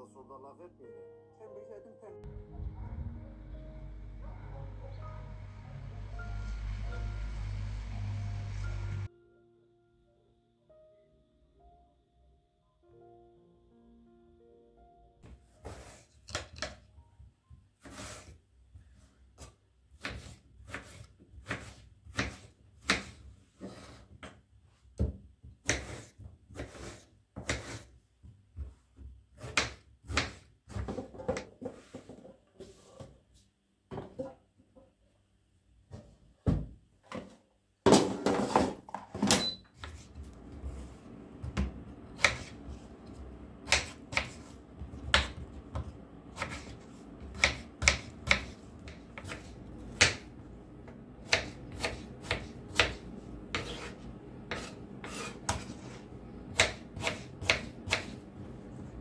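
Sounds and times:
steady low hum: 2.2s - 9.1s, 40.0s - 59.0s.

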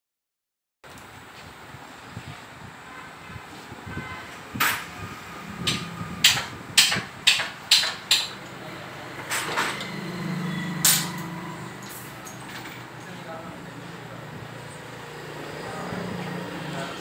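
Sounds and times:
sharp metallic knocks: 4.5s - 12.8s.

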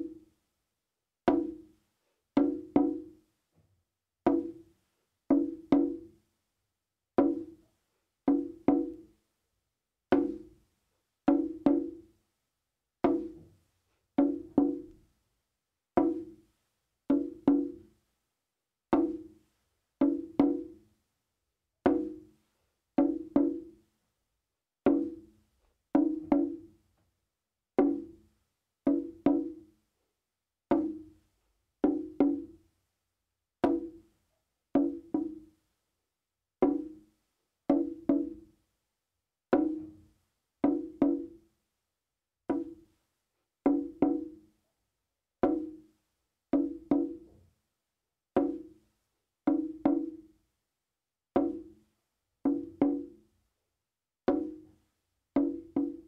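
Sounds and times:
hand drum struck in rhythm: 1.3s - 1.7s, 2.4s - 3.2s, 4.2s - 4.6s, 5.3s - 6.2s, 7.2s - 7.6s, 8.3s - 9.1s, 10.1s - 10.6s, 11.3s - 12.1s, 13.0s - 13.4s, 14.2s - 15.0s, 16.0s - 16.4s, 17.1s - 17.9s, 18.9s - 19.4s, 20.0s - 20.8s, 21.8s - 22.3s, 23.0s - 23.8s, 24.9s - 25.3s, 25.9s - 26.7s, 27.8s - 28.2s, 28.8s - 29.7s, 30.7s - 31.1s, 31.8s - 32.6s, 33.6s - 34.0s, 34.8s - 35.5s, 36.6s - 37.0s, 37.7s - 38.5s, 39.5s - 40.0s, 40.6s - 41.4s, 42.5s - 42.8s, 43.7s - 44.4s, 45.4s - 45.8s, 46.5s - 47.4s, 48.4s - 48.8s, 49.5s - 50.4s, 51.4s - 51.8s, 52.4s - 53.2s, 54.3s - 54.7s, 55.4s - 56.0s.

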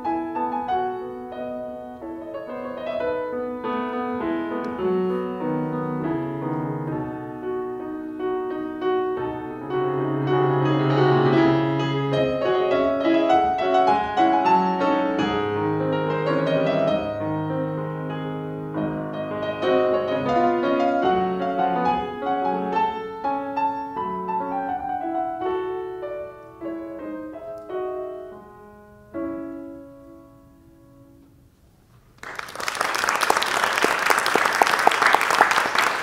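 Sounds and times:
grand piano playing: 0.0s - 31.5s
audience applause: 32.2s - 36.0s.

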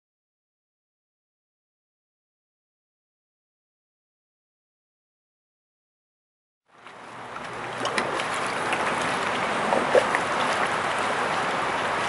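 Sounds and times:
water lapping and trickling: 6.7s - 12.0s
small splashes and drips: 6.8s - 12.0s.

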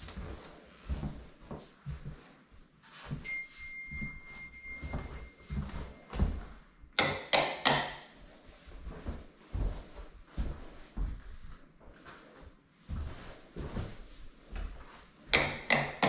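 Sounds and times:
footsteps on hard floor: 0.0s - 6.9s, 8.0s - 16.0s
faint steady high tone: 3.0s - 6.7s.

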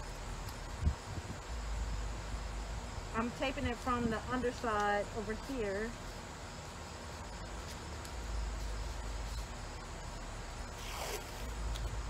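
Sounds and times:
tape ripping off roll: 10.8s - 12.0s.

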